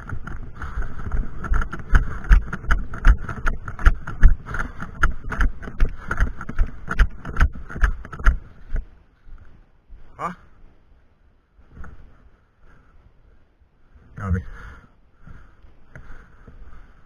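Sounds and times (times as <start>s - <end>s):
running footsteps: 0.0s - 10.2s.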